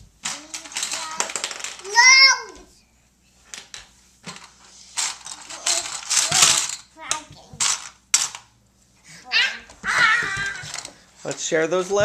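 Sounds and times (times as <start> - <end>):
plastic letters rattling in a bowl: 0.2 - 2.0, 3.5 - 8.5, 9.8 - 12.0.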